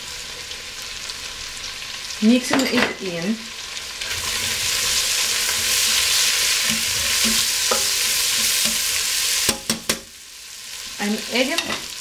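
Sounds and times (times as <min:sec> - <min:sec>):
vegetables sizzling in a pot: 0:00.0 - 0:12.0
utensil knocking on pot: 0:09.5 - 0:10.1.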